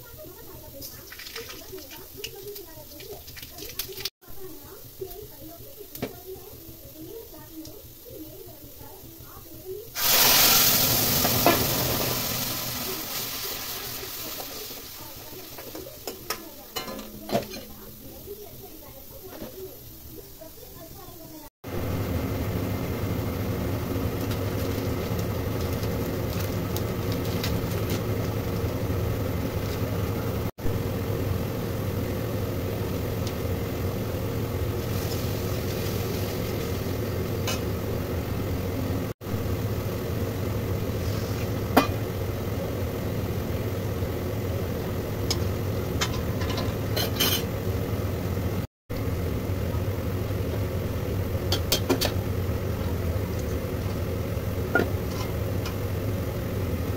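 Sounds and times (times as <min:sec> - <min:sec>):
mechanical motor hum: 0:13.8 - 0:56.9.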